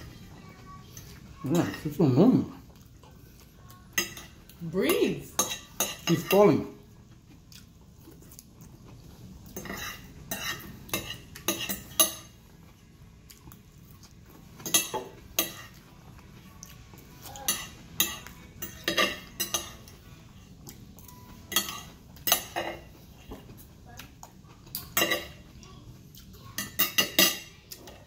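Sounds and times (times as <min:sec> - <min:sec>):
cutlery clinking on a plate: 0:04.0 - 0:04.4, 0:05.0 - 0:06.5, 0:09.5 - 0:12.4, 0:14.6 - 0:15.8, 0:17.4 - 0:20.0, 0:21.0 - 0:23.6, 0:24.7 - 0:25.5, 0:26.6 - 0:28.0.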